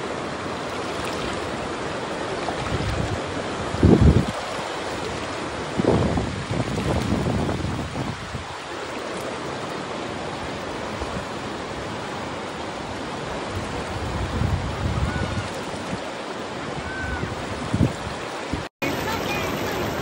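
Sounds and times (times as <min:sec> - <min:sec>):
river rapids rushing: 0:00.0 - 0:06.7, 0:07.3 - 0:20.0
wind buffeting microphone: 0:02.5 - 0:08.6, 0:12.7 - 0:20.0.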